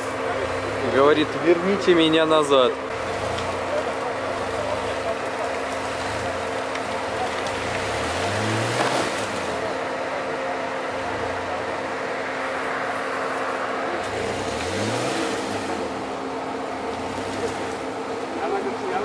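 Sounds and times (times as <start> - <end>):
suv engine revving: 0.0 - 19.0.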